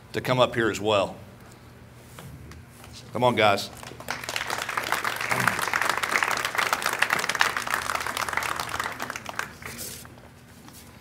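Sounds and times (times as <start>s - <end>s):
crowd applauding: 3.8s - 10.0s.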